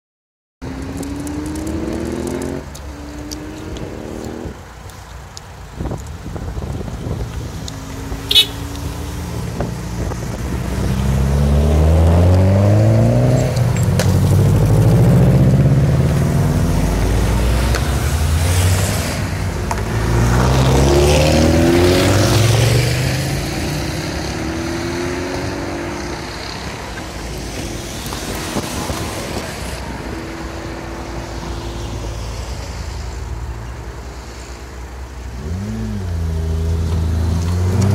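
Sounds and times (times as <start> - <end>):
cars revving past: 0.6 - 4.8, 7.1 - 37.9
sharp crack: 0.7 - 6.2.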